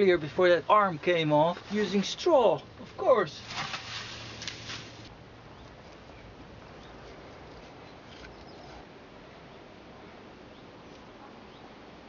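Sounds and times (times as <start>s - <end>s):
faint outdoor hiss: 0.0s - 12.0s
small birds chirping: 4.6s - 8.8s.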